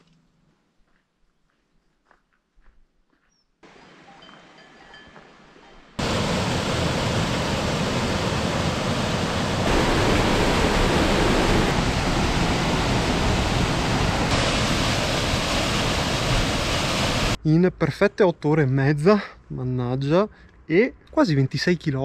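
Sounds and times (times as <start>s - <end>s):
faint outdoor ambience: 0.0s - 22.0s
waterfall rushing: 6.0s - 17.4s.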